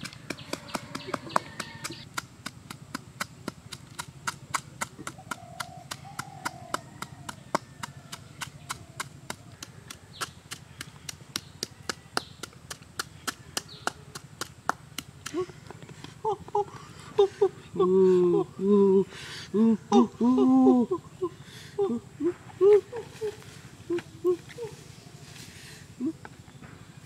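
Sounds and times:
wooden pestle pounding in coconut shell: 0.0 - 16.2.

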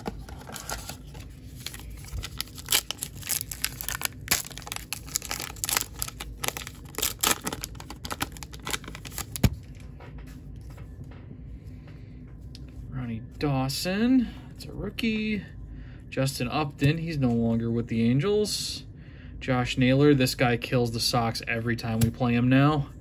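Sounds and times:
wrapper tearing and crinkling: 0.0 - 9.6.

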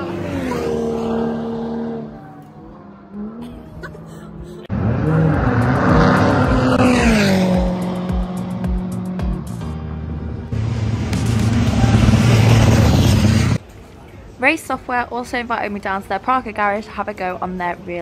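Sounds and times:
race car passing close: 0.0 - 3.5, 4.7 - 9.2, 10.5 - 13.6
race car engine: 0.0 - 13.6.

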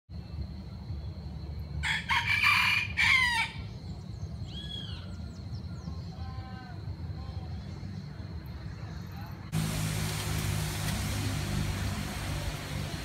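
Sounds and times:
rooster crowing: 1.8 - 3.7
faint bird calls: 3.4 - 8.1
steady low rumble: 3.6 - 13.0.

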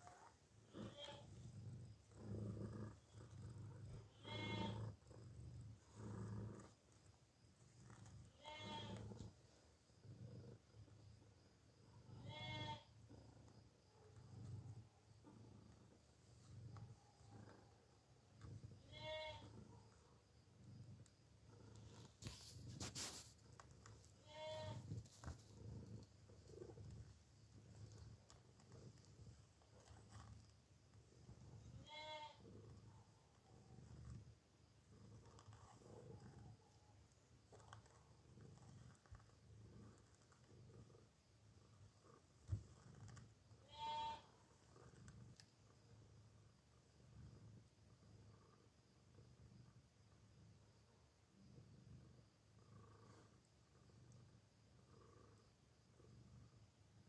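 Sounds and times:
cat purring: 0.0 - 57.0
cat meowing: 4.2 - 4.8.

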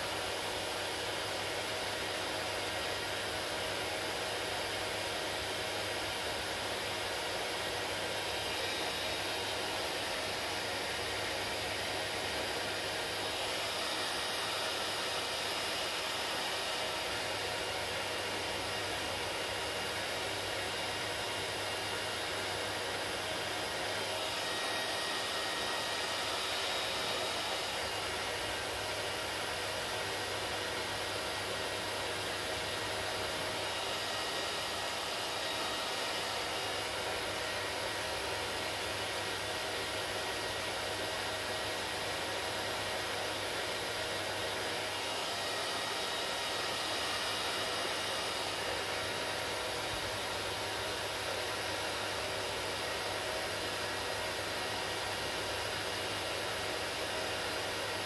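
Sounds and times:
hair dryer blowing air: 0.0 - 58.0.

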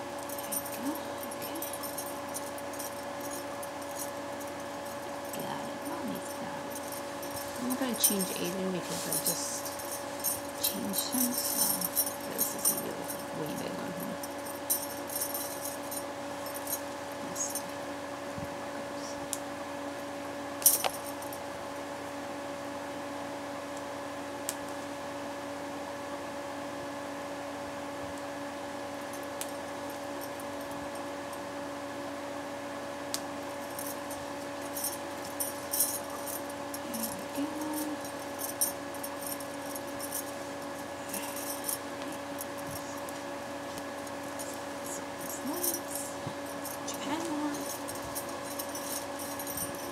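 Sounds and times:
steady hum: 0.0 - 49.9
bangle bracelets jangling: 0.2 - 17.8, 20.6 - 21.4, 33.6 - 49.9.

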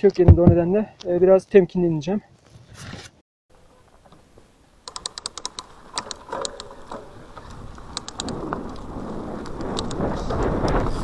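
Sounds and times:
sharp irregular clicks: 4.8 - 10.8
bike tyres rolling on dirt: 5.5 - 11.0
wind on microphone: 6.8 - 11.0.

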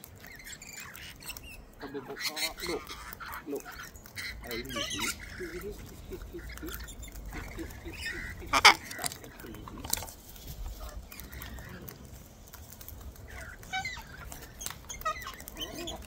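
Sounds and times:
parrots chirping and squawking: 0.0 - 16.0.

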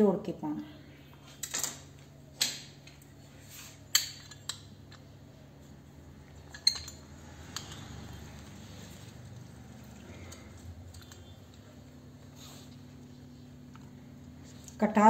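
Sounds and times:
faint steady hum: 0.0 - 15.0
metal kitchenware clinks: 6.5 - 8.0.

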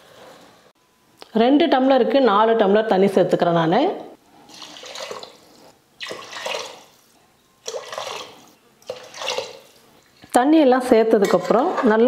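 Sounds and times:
water pouring and splashing: 4.5 - 7.0, 7.6 - 10.0.

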